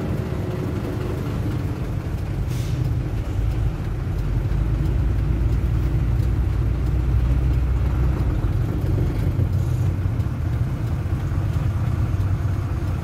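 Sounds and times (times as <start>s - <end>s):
diesel truck engine rumbling: 0.0s - 13.0s
short hiss: 2.5s - 2.8s.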